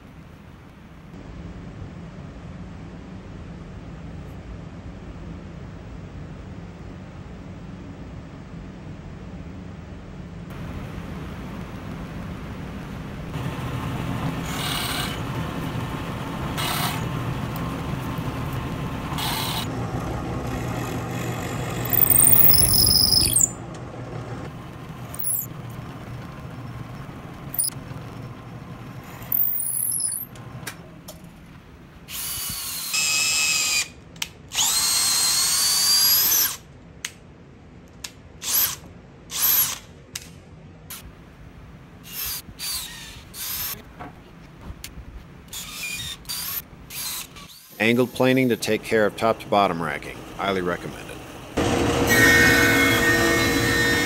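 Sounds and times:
drill press boring into wood: 13.4s - 23.6s, 24.8s - 30.5s, 32.1s - 33.9s, 34.5s - 36.6s, 42.1s - 43.8s, 45.6s - 49.5s, 51.6s - 54.0s.

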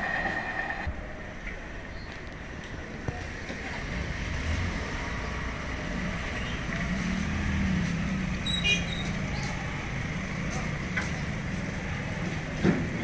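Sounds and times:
motorcycle engines pulling away: 3.7s - 12.6s.

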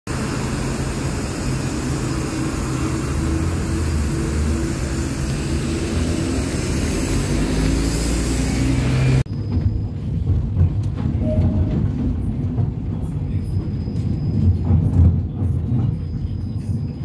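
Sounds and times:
traffic on wet road: 0.1s - 9.3s
tram approaching on rails: 0.1s - 17.0s.

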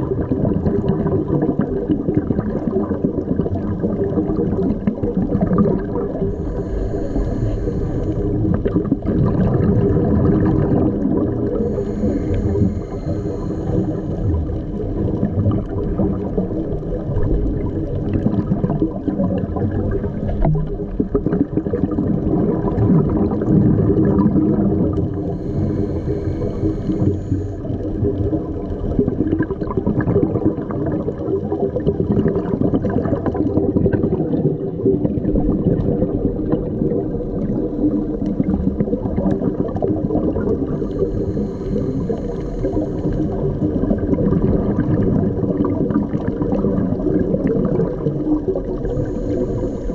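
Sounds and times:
underwater gurgling: 0.0s - 49.9s
continuous low drone: 6.2s - 8.9s, 11.0s - 15.0s, 24.9s - 28.0s, 40.5s - 43.9s, 48.8s - 49.9s.

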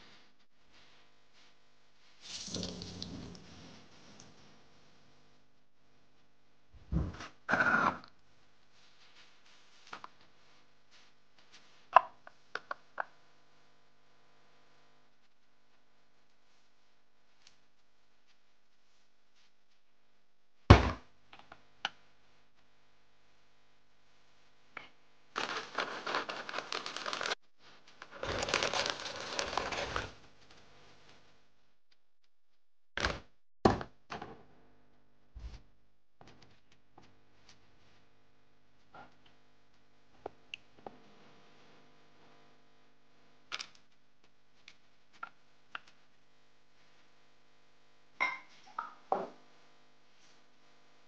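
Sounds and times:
plastic bag crinkling: 25.4s - 27.4s, 28.0s - 30.2s.

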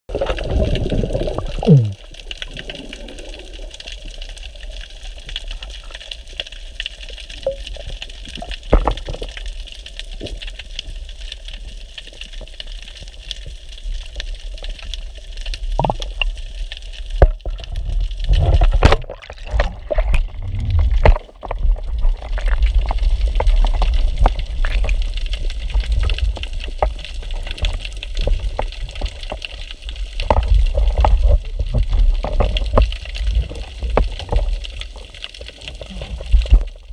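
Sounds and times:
low underwater rumble: 0.1s - 6.0s, 15.6s - 35.1s
water swishing: 0.1s - 10.2s, 13.6s - 36.9s
faint clicks and crackles: 0.1s - 36.9s
water movement: 0.1s - 36.9s.

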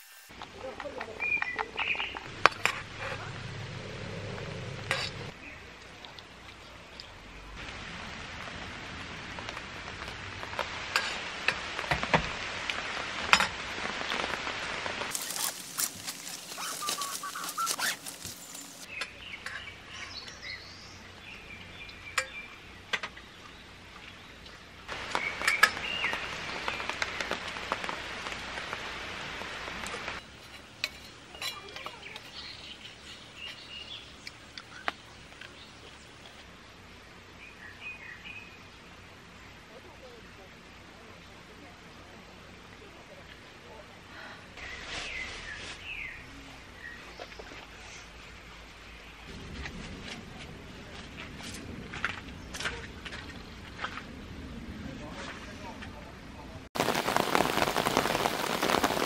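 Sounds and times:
bird chirps: 1.2s - 2.3s, 16.2s - 22.6s
rain pattering on a tent: 5.3s - 19.0s, 23.0s - 30.2s, 40.9s - 59.0s.

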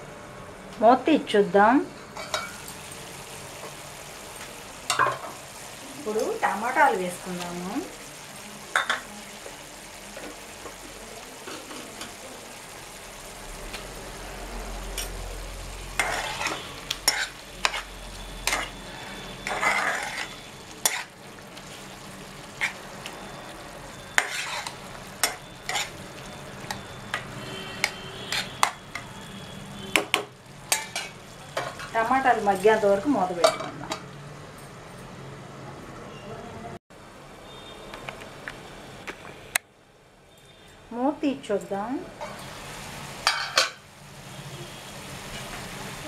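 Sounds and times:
curry sizzling in frying pan: 1.6s - 34.3s, 42.0s - 46.0s
spatula scraping a pan: 16.0s - 21.2s, 22.5s - 22.9s, 24.0s - 29.1s.

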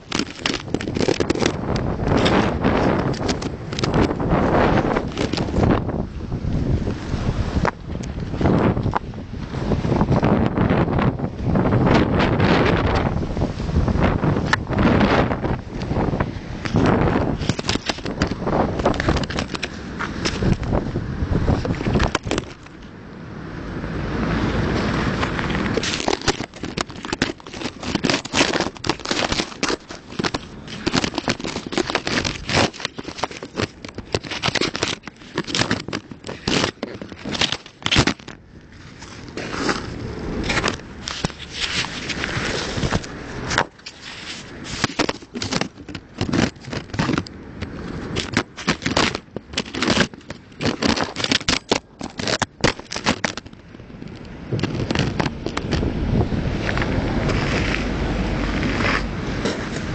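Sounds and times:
hand tools scraping on stone: 25.5s - 38.3s.

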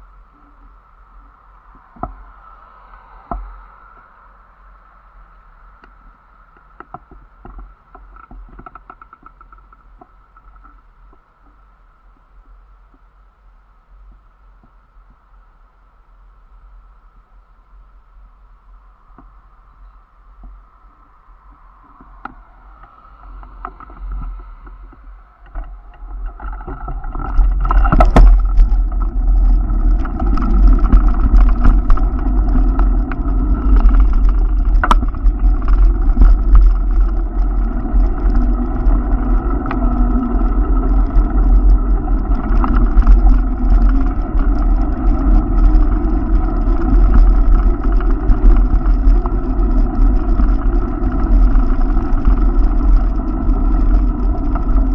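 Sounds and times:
road and tyre rumble: 0.0s - 54.9s
wind buffeting microphone: 18.3s - 54.9s.

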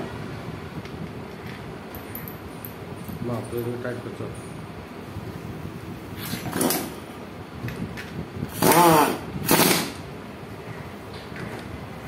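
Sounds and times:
impact wrench bursts: 8.5s - 10.0s.

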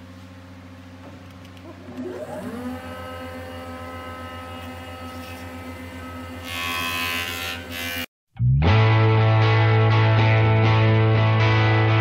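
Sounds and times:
motor spinning up and humming: 1.6s - 8.0s.

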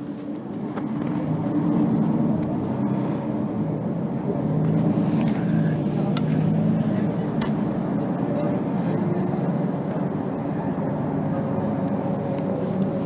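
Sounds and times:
bus diesel engine droning: 0.0s - 13.0s.

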